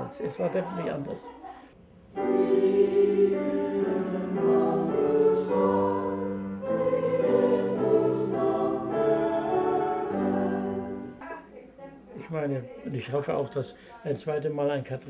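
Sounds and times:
choir singing held chords: 0.0s - 11.2s.

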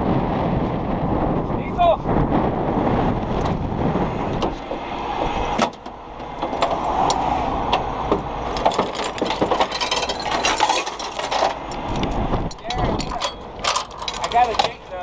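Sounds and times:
low rumble: 0.0s - 15.0s
chain and shackles clicking: 8.5s - 15.0s.

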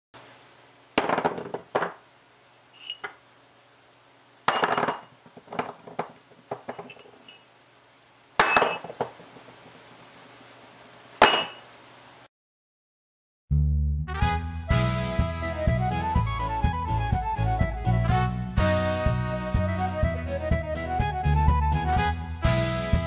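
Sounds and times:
metal pieces bouncing and ringing: 2.8s - 3.2s, 4.5s - 7.5s, 8.4s - 9.2s, 11.2s - 11.8s
metal spikes clanking on workbench: 2.8s - 3.2s.

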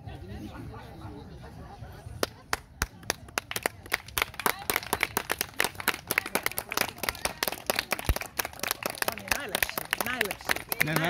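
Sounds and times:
people clapping: 2.2s - 11.0s.

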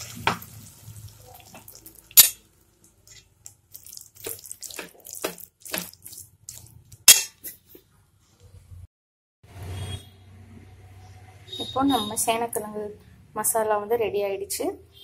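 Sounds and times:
metal spoon scraping a pot: 7.0s - 7.6s.

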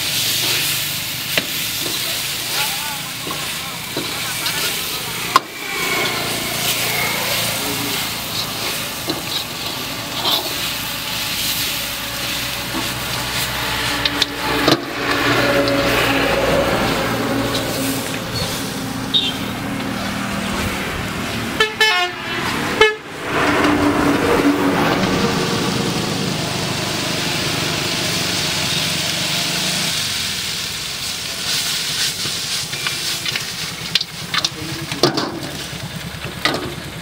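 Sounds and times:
ladle stirring in a wok: 0.0s - 18.8s, 29.9s - 36.7s
food sizzling in a wok: 0.0s - 22.1s, 24.4s - 37.0s
vehicle engine running: 0.0s - 37.0s
vehicle horn pulses: 19.0s - 19.6s, 21.6s - 23.1s.

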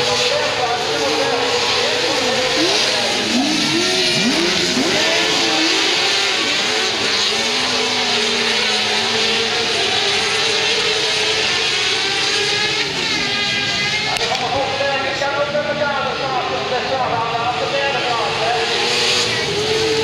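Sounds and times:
kart engines revving: 0.0s - 20.0s.

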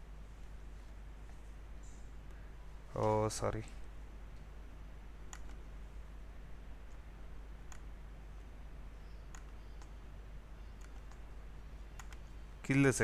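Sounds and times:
low steady hum: 0.0s - 13.0s
computer mouse clicking: 5.3s - 5.6s, 7.6s - 7.9s, 9.2s - 10.0s, 10.8s - 12.3s.

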